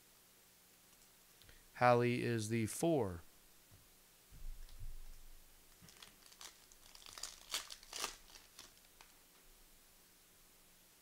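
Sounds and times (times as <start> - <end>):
wrapper crinkling and tearing: 5.7 - 9.2.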